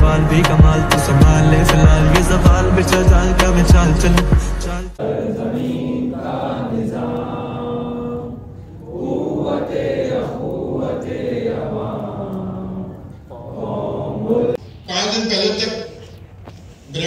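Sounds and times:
voices chanting long notes: 0:05.0 - 0:14.6.

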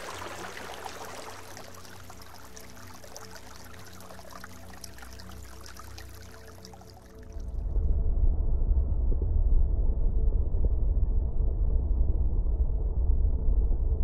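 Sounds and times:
stream trickling over rocks: 0:00.0 - 0:07.6
faint low drone: 0:00.0 - 0:14.0.

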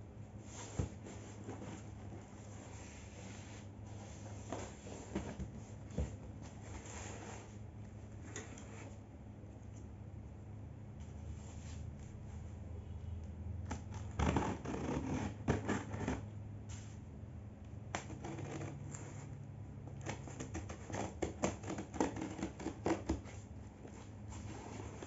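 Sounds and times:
scissors cutting packing tape: 0:13.7 - 0:16.2, 0:20.0 - 0:23.2.

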